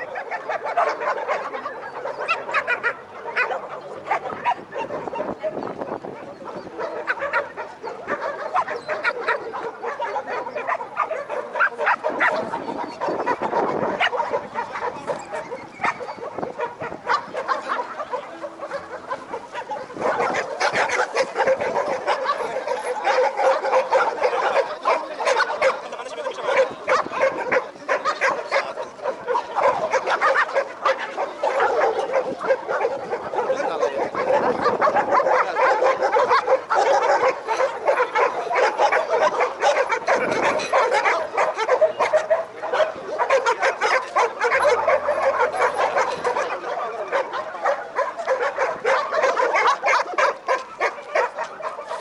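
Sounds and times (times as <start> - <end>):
many dogs barking and yelping: 0.0 - 52.0.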